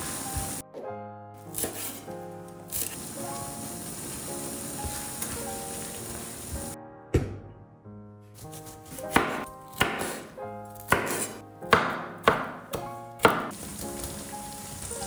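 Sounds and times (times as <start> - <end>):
knife chopping on cutting board: 1.5 - 2.0, 8.4 - 13.6.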